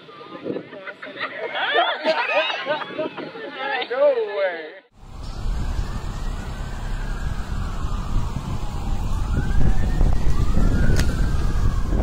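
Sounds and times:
sirens wailing: 5.0 - 12.0
steady low rumble: 5.0 - 12.0.

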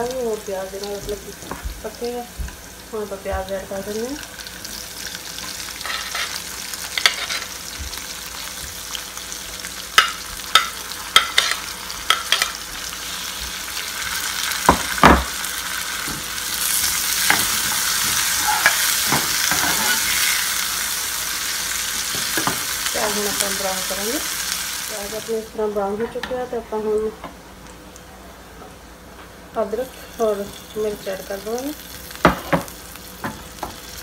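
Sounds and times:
onions sizzling in oil: 0.0 - 28.1, 29.6 - 34.0
spoon clinking and scraping pan: 7.0 - 7.5, 19.5 - 20.4.

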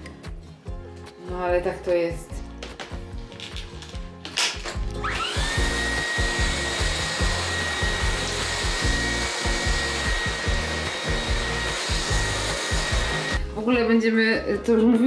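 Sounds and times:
vacuum cleaner motor whine: 5.0 - 13.4.

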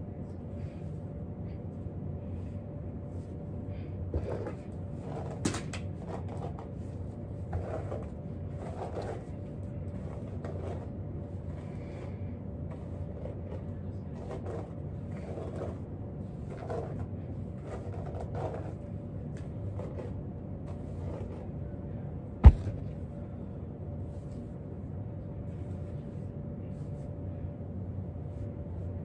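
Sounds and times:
low room hum: 0.0 - 29.0
sharp knocks: 22.4 - 22.8
thuds and rustles of movement: 22.4 - 22.9.

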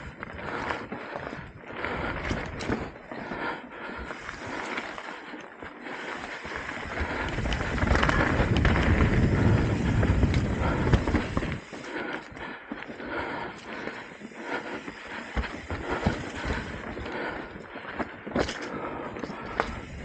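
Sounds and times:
bike tyres rolling over dirt: 0.0 - 20.0
bike knocks and rattles: 6.1 - 11.9, 12.9 - 20.0
wind on microphone: 6.8 - 11.7.

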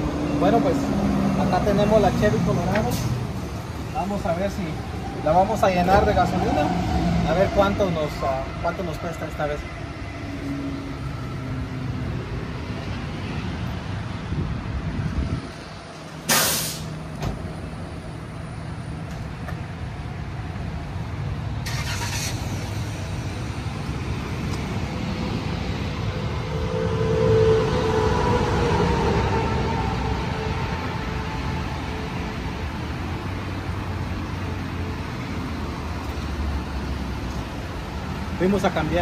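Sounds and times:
vehicle engines rumbling: 0.0 - 39.0
loud hisses: 16.3 - 17.0.

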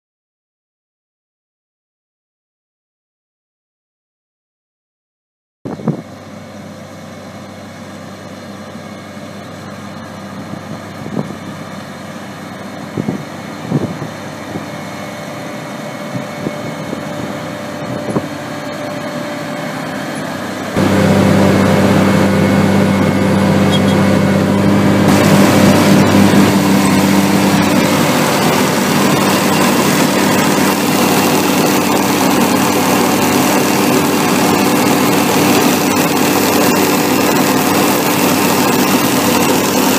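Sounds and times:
harvester engine drone: 5.7 - 39.9
machinery clatter: 16.2 - 39.9.

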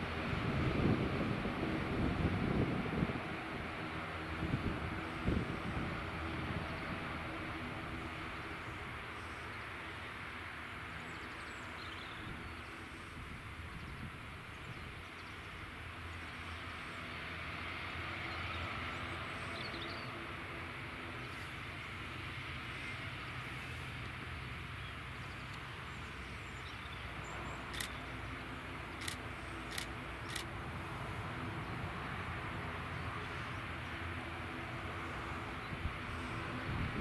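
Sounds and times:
propeller and engine drone: 0.0 - 37.0
sharp clicks: 27.7 - 28.0, 29.0 - 30.5.

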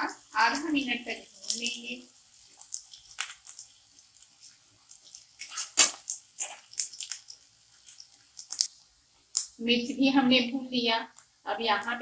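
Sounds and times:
spatula scraping frying onions: 0.0 - 9.6.

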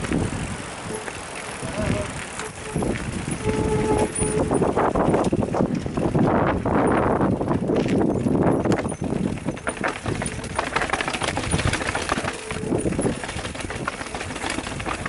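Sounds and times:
bike frame rattling: 0.0 - 15.0
bike tyres knocking on steps: 7.5 - 15.0.

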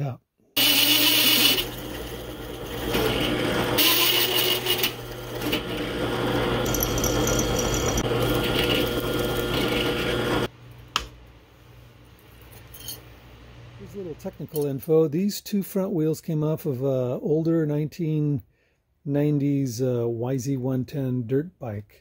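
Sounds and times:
drill press motor hum: 0.6 - 10.5
hole saw cutting steel: 0.6 - 10.5.

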